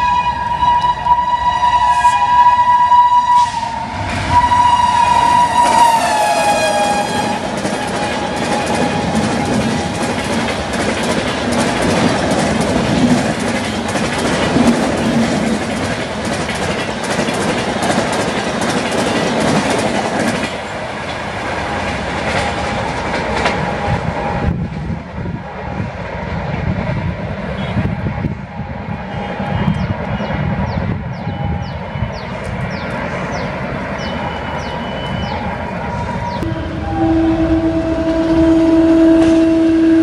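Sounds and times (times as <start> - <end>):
train wheels clacking on rails: 4.0 - 25.0.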